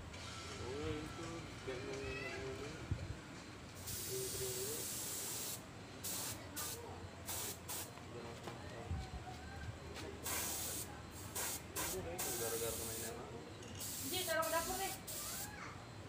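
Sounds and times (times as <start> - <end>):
spray gun hissing: 3.8 - 7.9, 10.2 - 13.2, 13.8 - 15.5.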